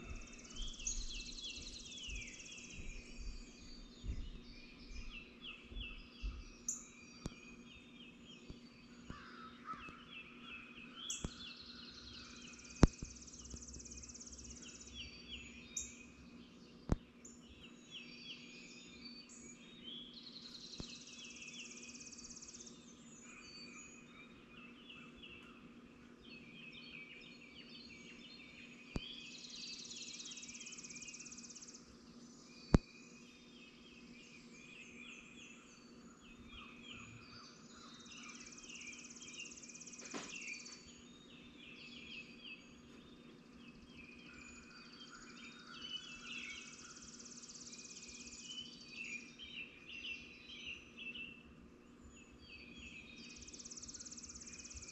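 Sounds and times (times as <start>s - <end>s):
steady low hum: 0.0s - 17.9s
birds chirping and trilling: 0.0s - 54.9s
high buzzy bird song: 0.0s - 54.9s.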